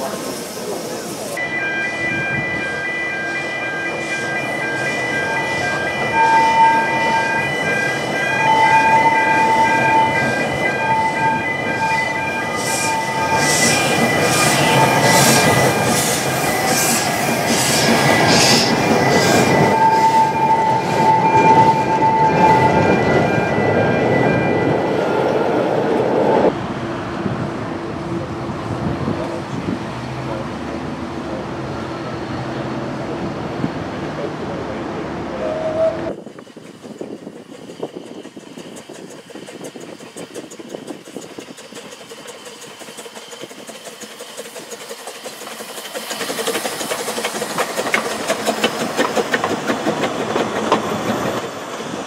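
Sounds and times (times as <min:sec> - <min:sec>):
steam locomotive exhaust beats: 0:00.0 - 0:24.8, 0:35.0 - 0:52.0
train wheels squealing: 0:00.0 - 0:25.6, 0:35.3 - 0:52.0.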